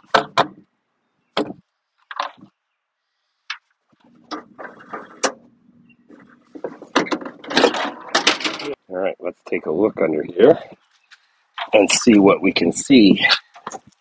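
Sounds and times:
mower parts clunking: 0:01.4 - 0:02.5, 0:03.5 - 0:08.8, 0:13.3 - 0:14.0
loud clattering: 0:06.2 - 0:08.8.

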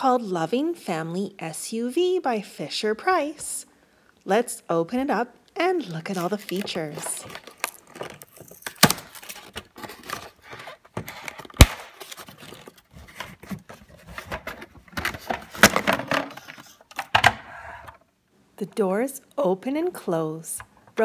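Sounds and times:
packaging rustling: 0:06.0 - 0:17.0
plastic and cardboard snapping: 0:07.4 - 0:09.8, 0:11.5 - 0:12.2.

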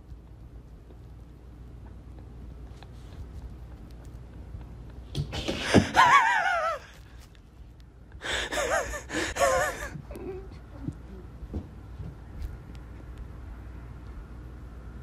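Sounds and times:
breathy high-pitched vocal cries: 0:08.2 - 0:10.5.

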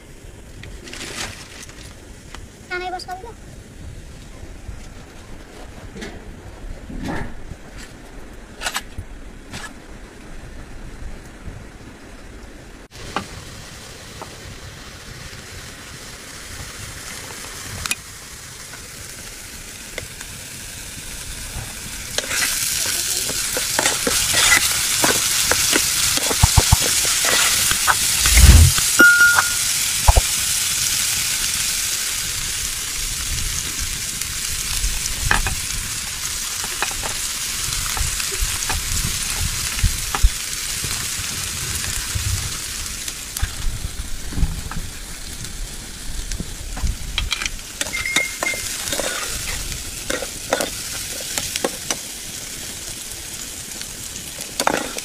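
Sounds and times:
onions sizzling in oil: 0:12.8 - 0:55.0
ladle scraping metal wok: 0:22.2 - 0:29.6, 0:47.8 - 0:51.9, 0:54.6 - 0:55.0
ladle knocking wok: 0:22.2 - 0:30.2.

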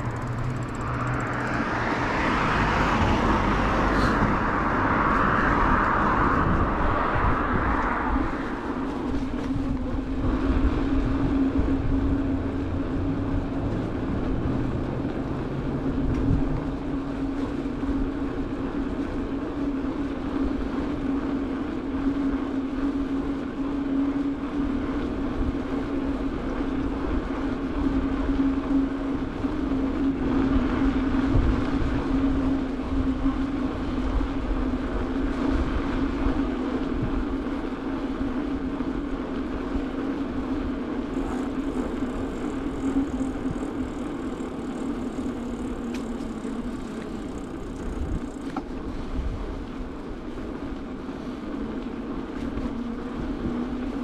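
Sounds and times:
bicycle tyres humming on asphalt: 0:00.0 - 0:54.0
wind rumbling over microphone: 0:00.0 - 0:54.0.

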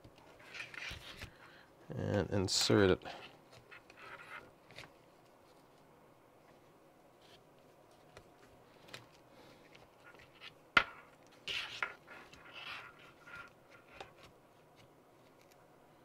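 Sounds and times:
scratchy rustling and scraping: 0:00.3 - 0:01.4, 0:03.1 - 0:05.8, 0:07.2 - 0:15.6.

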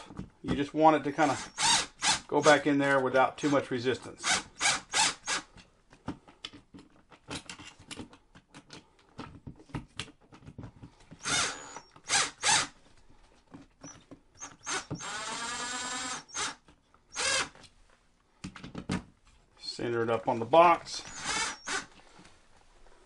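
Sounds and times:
cordless drill driving screws: 0:01.2 - 0:02.6, 0:04.2 - 0:05.5, 0:11.2 - 0:12.8, 0:13.8 - 0:17.6, 0:21.0 - 0:22.0
drill motor whine: 0:11.2 - 0:12.7, 0:14.4 - 0:17.5, 0:21.0 - 0:21.9.

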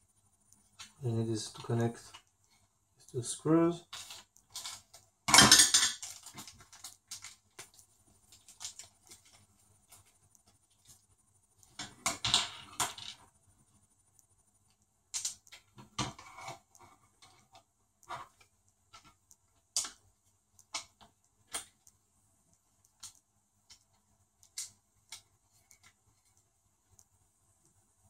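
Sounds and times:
plastic parts and screws clicking: 0:03.8 - 0:11.0, 0:14.2 - 0:20.0, 0:20.6 - 0:22.0, 0:22.8 - 0:27.1.

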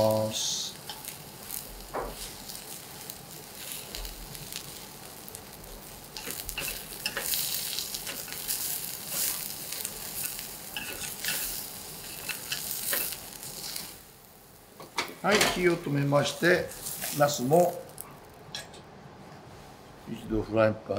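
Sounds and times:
eggplant sizzling in oil: 0:00.0 - 0:18.5
metal tongs clicking on pan: 0:06.2 - 0:08.5, 0:10.8 - 0:13.2.

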